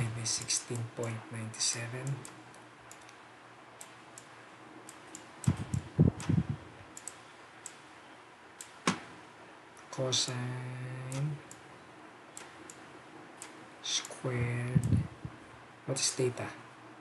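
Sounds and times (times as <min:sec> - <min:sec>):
computer mouse clicking: 0:02.0 - 0:03.2, 0:03.8 - 0:07.9, 0:12.3 - 0:15.1
dull low thumps: 0:05.4 - 0:06.7, 0:14.4 - 0:15.4.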